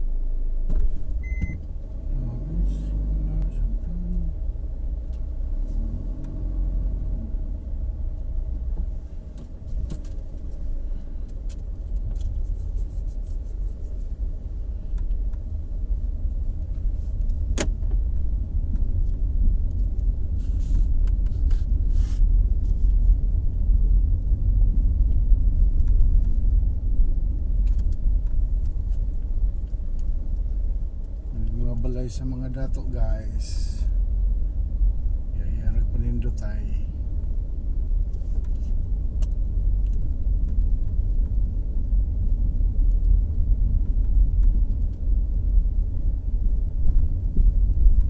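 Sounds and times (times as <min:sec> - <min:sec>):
car engine and road noise: 0:00.0 - 0:48.0.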